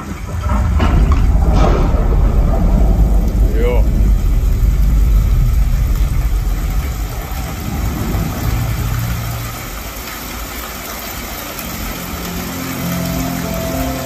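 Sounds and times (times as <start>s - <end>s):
deep bass rumble: 0.0s - 10.6s
hissy ambience: 0.0s - 14.0s.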